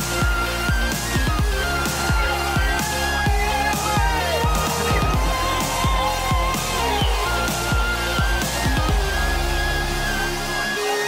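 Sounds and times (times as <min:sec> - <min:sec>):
electronic dance music: 0:00.0 - 0:11.0
heavy kick drum: 0:01.2 - 0:09.5.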